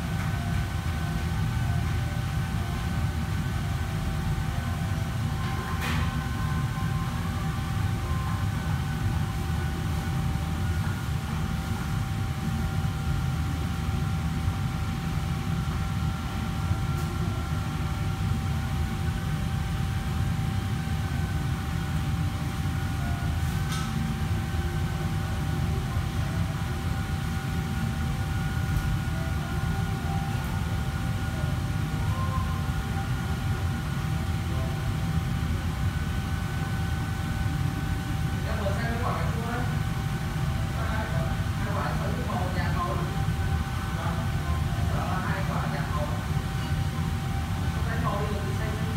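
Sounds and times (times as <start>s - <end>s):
high whine: 0.0s - 48.9s
low machine rumble: 0.0s - 48.9s.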